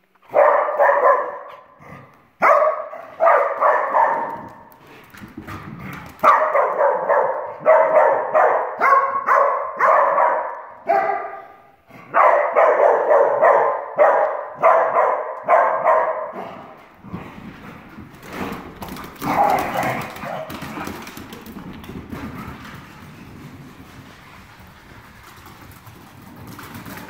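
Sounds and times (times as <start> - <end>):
dog barking: 0.3 - 1.8, 2.4 - 4.6, 6.2 - 16.7.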